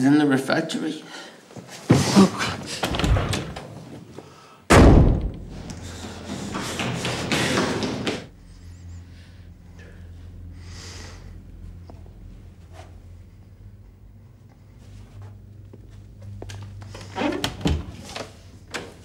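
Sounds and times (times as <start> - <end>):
door banging: 1.9 - 3.8, 4.7 - 8.3
noisy movement: 5.2 - 19.0
low steady hum: 8.2 - 19.0.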